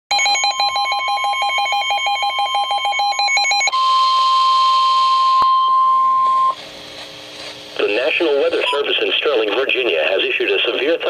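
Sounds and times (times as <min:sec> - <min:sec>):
steady warning alarm tone: 0:00.1 - 0:06.6.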